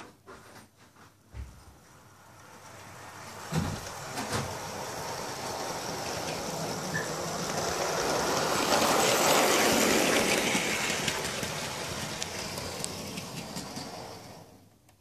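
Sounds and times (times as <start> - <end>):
model train rolling on track: 1.7 - 15.0.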